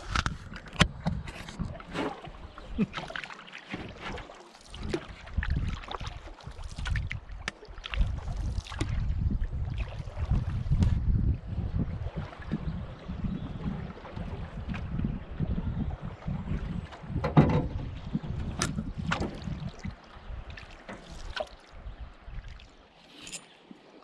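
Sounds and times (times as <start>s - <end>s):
wind on microphone: 0.0s - 2.9s, 4.8s - 22.6s
paddle strokes through water: 0.0s - 24.0s
water splashes: 0.0s - 24.0s
knocks against canoe: 17.1s - 17.9s, 18.5s - 19.5s.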